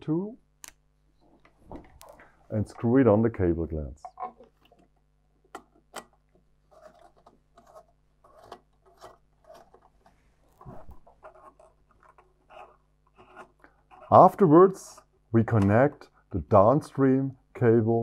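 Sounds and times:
cable rubbing on fittings: 0:06.7 - 0:15.1.

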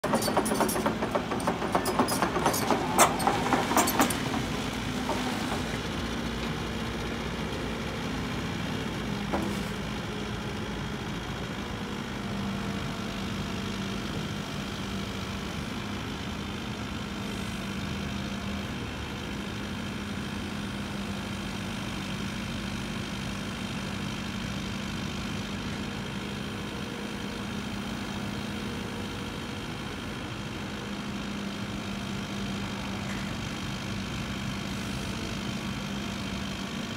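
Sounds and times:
clattering knocks: 0:00.0 - 0:05.7
excavator diesel engine running: 0:00.0 - 0:36.9.

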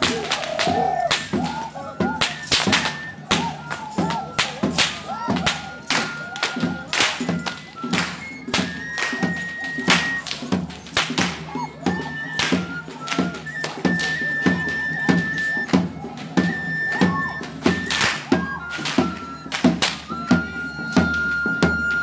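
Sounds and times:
whip cracks: 0:00.0 - 0:01.6, 0:02.2 - 0:08.2
cane flute long high notes: 0:00.0 - 0:10.6, 0:11.2 - 0:22.0.

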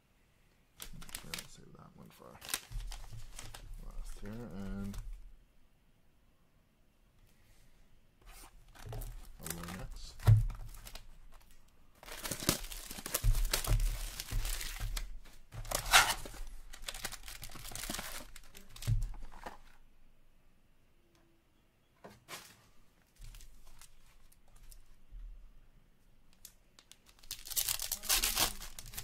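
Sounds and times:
cardboard and wrapping tearing: 0:00.8 - 0:01.5, 0:02.4 - 0:03.6, 0:08.3 - 0:11.0, 0:12.0 - 0:14.9, 0:15.6 - 0:19.5, 0:27.0 - 0:29.0
packs crinkling: 0:00.8 - 0:05.1, 0:08.7 - 0:19.8, 0:23.1 - 0:24.9, 0:26.4 - 0:29.0.

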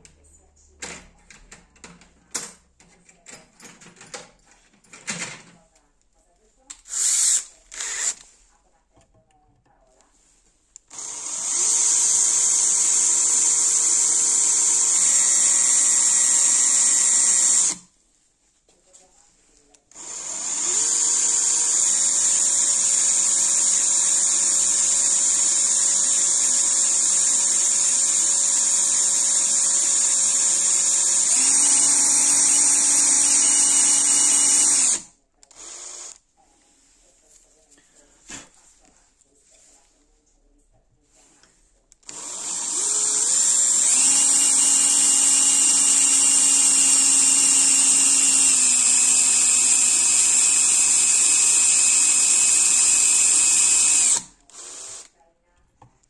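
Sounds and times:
cordless drill boring metal: 0:06.9 - 0:08.2, 0:10.9 - 0:17.8, 0:19.9 - 0:36.2, 0:42.0 - 0:55.1.

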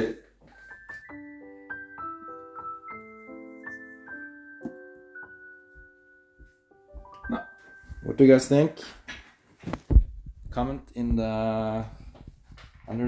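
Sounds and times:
solo piano melody: 0:00.5 - 0:08.6.

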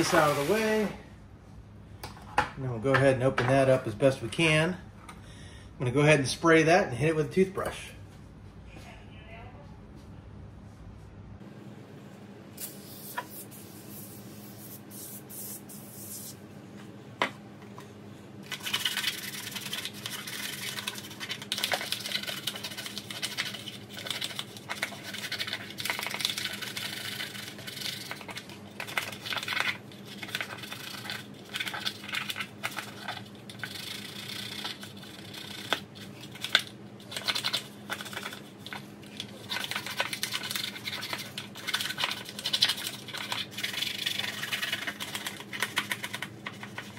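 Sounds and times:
toothbrush scrubbing plastic tray: 0:00.0 - 0:00.8, 0:18.5 - 0:46.9.

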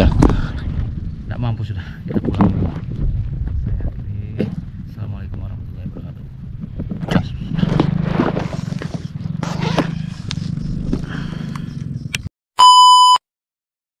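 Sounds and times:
electronic beep: 0:12.6 - 0:13.2.

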